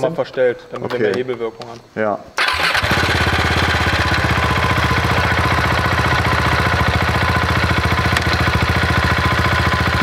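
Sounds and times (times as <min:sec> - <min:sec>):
motorcycle engine idling: 0:02.5 - 0:10.0.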